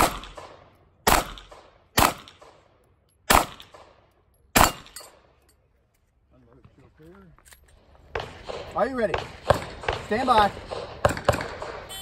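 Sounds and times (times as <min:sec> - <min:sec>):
pistol shots with echo: 0:00.0 - 0:05.2, 0:08.1 - 0:11.9.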